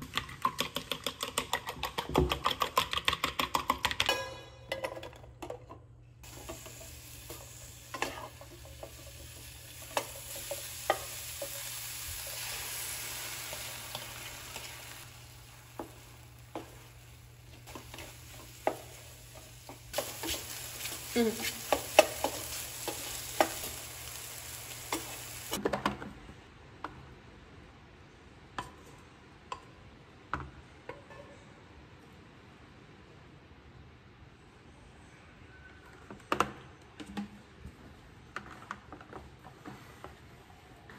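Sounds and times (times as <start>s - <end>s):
mushrooms sizzling in oil: 6.2s - 25.6s
wooden spatula scraping pan: 20.0s - 23.8s.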